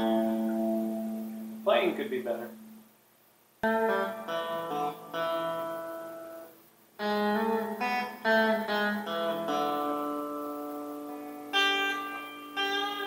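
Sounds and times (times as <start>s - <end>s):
guitar playing: 0.0s - 3.0s, 3.6s - 13.0s.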